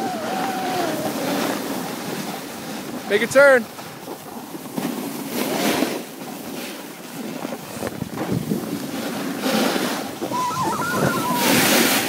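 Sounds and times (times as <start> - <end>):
wind on microphone: 7.4 - 12.0.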